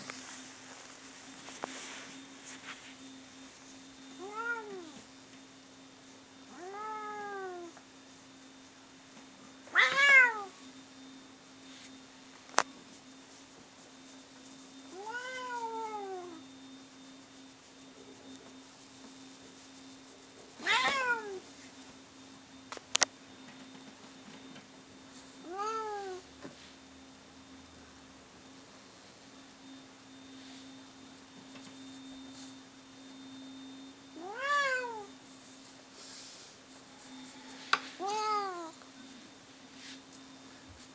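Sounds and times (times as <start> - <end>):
faint steady hum: 0.0 - 40.9
cats yowling: 6.5 - 7.8, 9.7 - 10.6, 15.0 - 16.4, 20.6 - 21.4, 34.2 - 35.1, 38.0 - 38.8.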